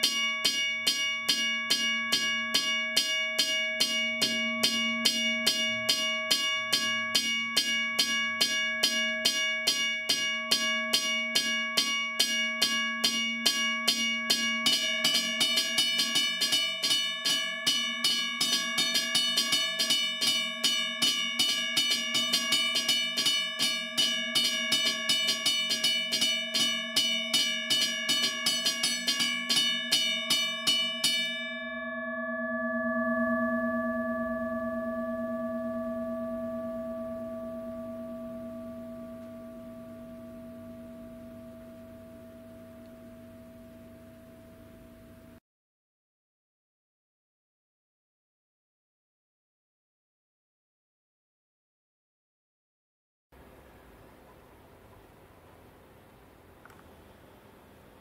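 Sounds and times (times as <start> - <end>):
railroad crossing bells ringing: 0.0 - 43.4.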